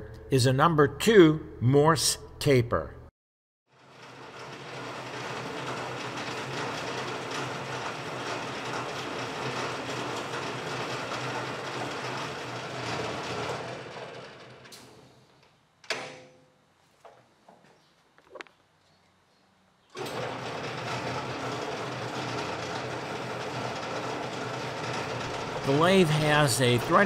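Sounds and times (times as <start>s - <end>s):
metal lathe rattling: 3.8s - 14.8s, 20.0s - 27.0s.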